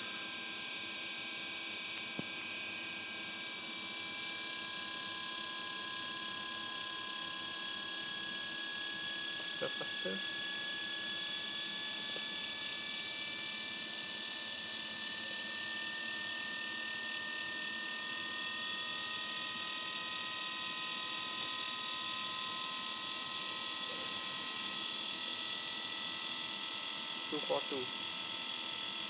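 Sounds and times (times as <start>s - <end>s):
electric motor whine: 6.7s - 29.0s.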